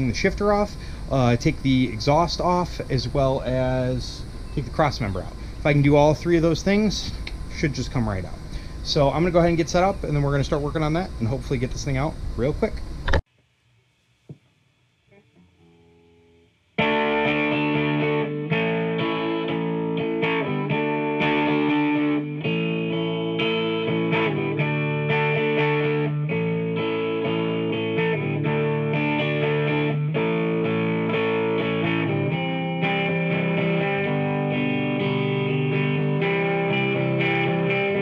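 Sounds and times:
distorted electric guitar rock music: 16.8s - 38.0s.

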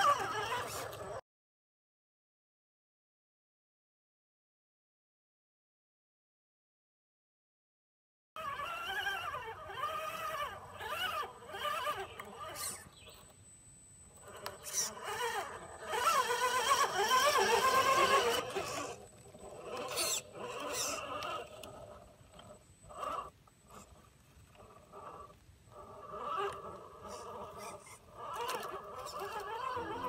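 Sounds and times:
electric motor whining: 0.0s - 1.2s, 8.4s - 30.0s.

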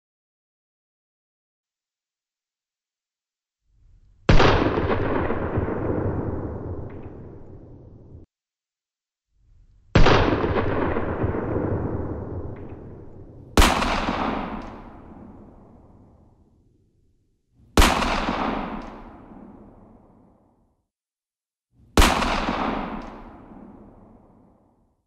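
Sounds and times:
gunshots with echoing tail: 4.3s - 8.3s, 10.0s - 20.7s, 21.9s - 24.9s.

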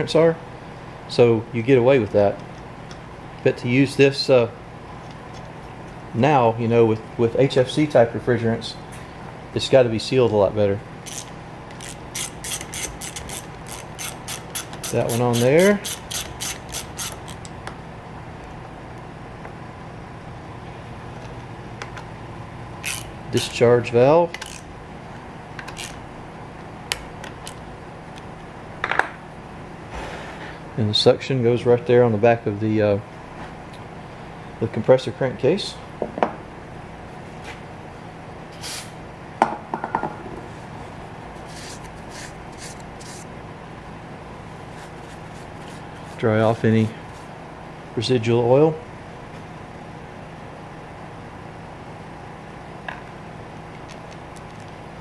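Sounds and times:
low workshop hum: 0.0s - 55.0s
paper towel wiping: 41.4s - 43.2s, 44.6s - 47.3s
aerosol can hissing: 41.5s - 43.2s.

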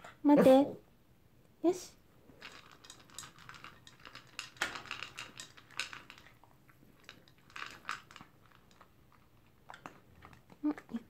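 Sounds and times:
dog crunching dry kibble: 2.3s - 11.0s.

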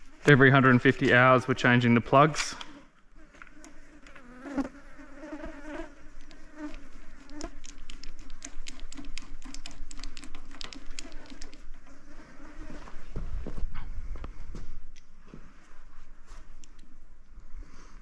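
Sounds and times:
fly buzzing: 0.0s - 0.8s, 2.7s - 13.2s.

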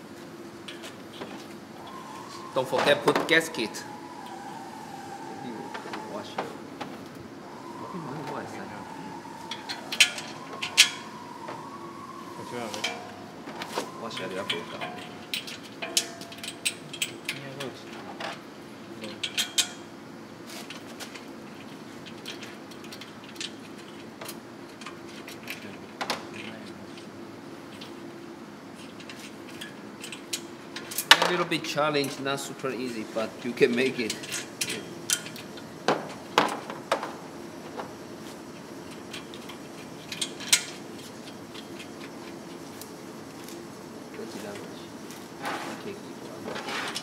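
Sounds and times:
faint steady hum: 0.0s - 47.0s
low hum: 0.7s - 17.1s
metal pipes clinking together: 14.1s - 17.4s, 19.1s - 19.8s.

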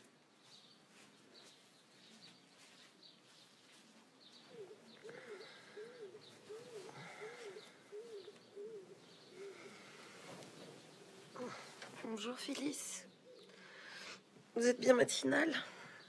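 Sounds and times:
small birds chirping: 0.0s - 16.0s
bird cooing: 4.4s - 11.8s, 13.2s - 13.8s.

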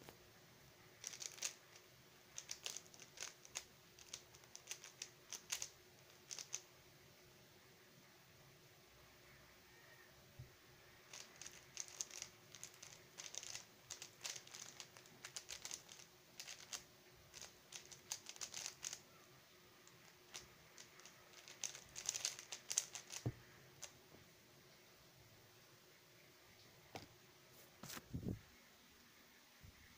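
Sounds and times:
puzzle cube clicking as turned: 1.0s - 6.6s, 11.1s - 19.2s, 19.8s - 23.9s.

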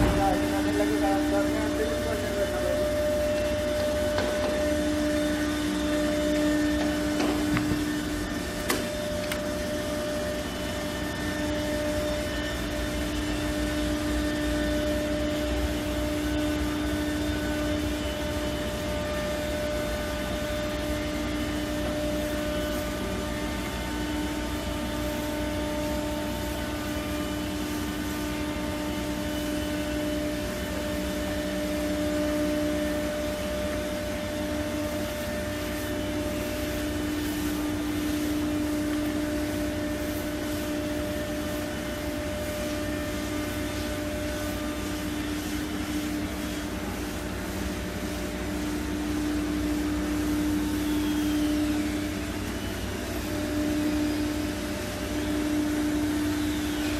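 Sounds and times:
low machine tone: 0.0s - 56.9s
machinery droning: 0.0s - 56.9s.

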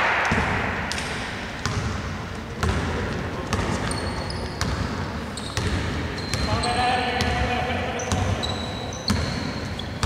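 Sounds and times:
basketball dribbling on hardwood: 1.6s - 3.9s
shoe squeaks: 3.6s - 10.0s.

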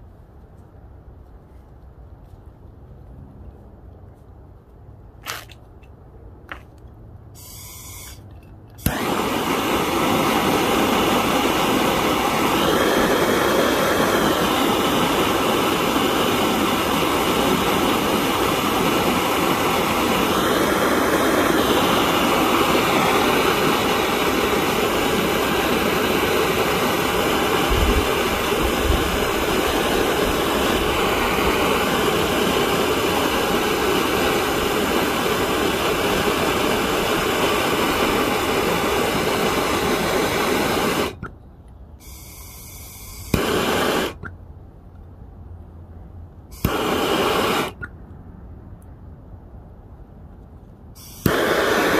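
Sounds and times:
gas torch flame roaring: 8.8s - 41.3s, 42.0s - 44.3s, 46.5s - 47.9s, 51.0s - 51.9s.

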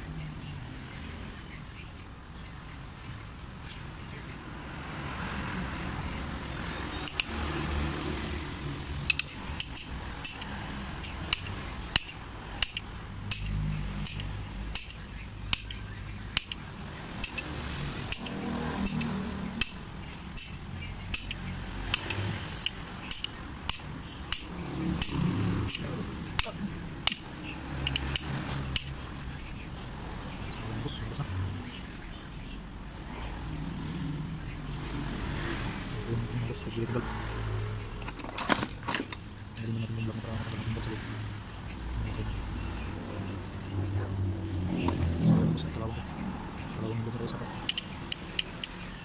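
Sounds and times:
metal part clinking against vise: 38.0s - 39.2s.

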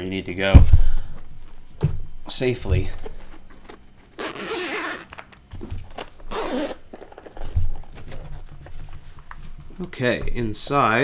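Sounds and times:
zipper being pulled open: 4.2s - 5.2s, 6.3s - 6.9s.

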